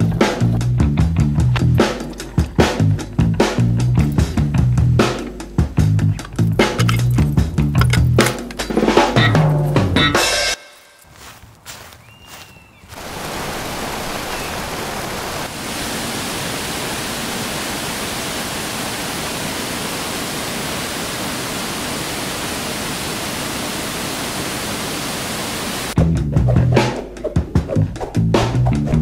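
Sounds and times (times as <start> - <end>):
steady rushing hiss: 12.9 - 26.0.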